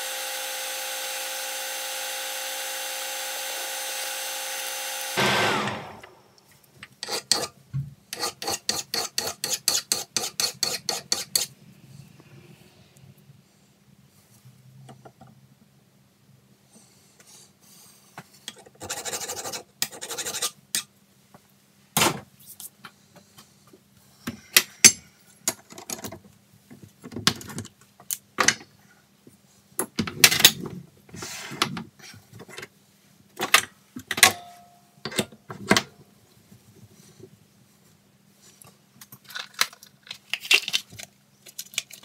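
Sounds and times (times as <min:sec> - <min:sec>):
hand file rasping on steel: 0:08.1 - 0:11.5
faint steady hum: 0:32.0 - 0:40.1.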